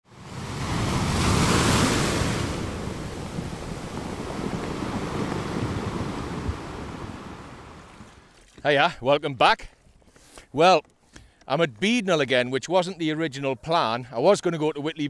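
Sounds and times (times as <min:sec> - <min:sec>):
sea wave breaking: 0:00.1 - 0:08.3.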